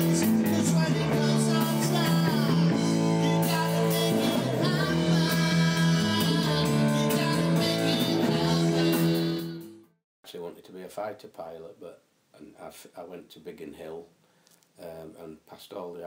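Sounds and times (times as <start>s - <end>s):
rock band playing: 0.0s - 9.8s.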